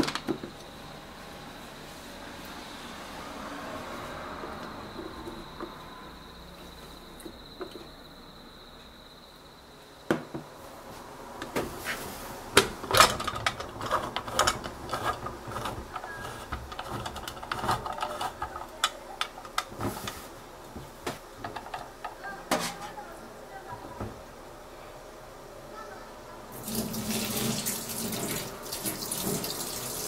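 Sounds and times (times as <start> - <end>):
faint steady high tone: 3.1 - 10.4
kitchen things clattering: 21.4 - 23.0.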